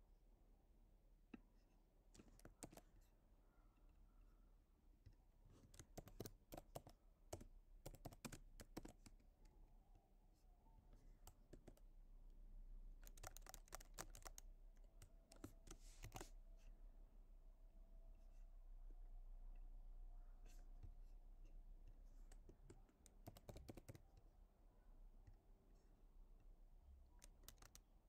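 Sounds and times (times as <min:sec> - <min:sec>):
faint keyboard typing: 0:02.1 - 0:03.0, 0:05.0 - 0:09.6, 0:10.9 - 0:12.0, 0:12.9 - 0:16.4, 0:21.9 - 0:24.3, 0:27.0 - 0:28.0.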